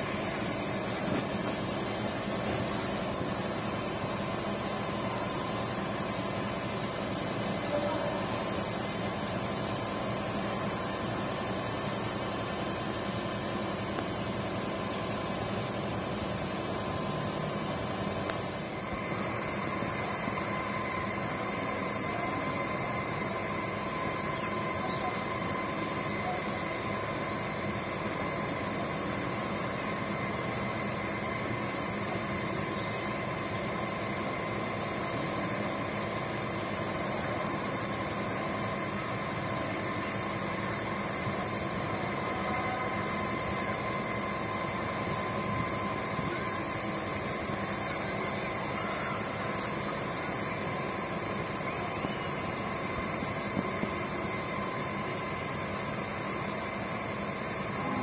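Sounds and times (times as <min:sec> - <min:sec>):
machine drone with whine: 0:00.0 - 0:58.0.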